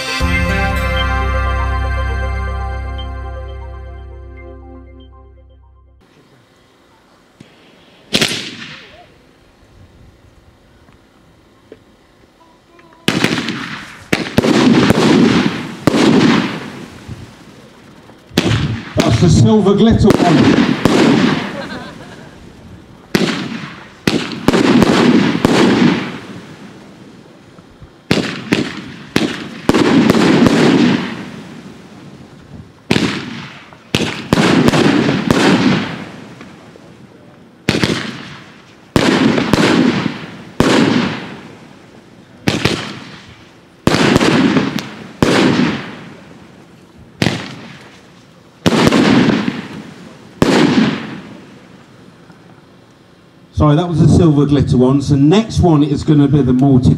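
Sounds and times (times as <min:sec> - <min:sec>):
firework crackling hiss: 0:06.0 - 0:11.5, 0:12.3 - 0:19.4, 0:20.0 - 0:52.9
firework pops and bursts: 0:07.4 - 0:09.0, 0:12.8 - 0:17.4, 0:18.0 - 0:19.4, 0:20.0 - 0:21.6, 0:23.1 - 0:26.6, 0:27.6 - 0:31.6, 0:32.8 - 0:36.6, 0:37.6 - 0:41.6, 0:42.4 - 0:46.3, 0:47.2 - 0:51.6.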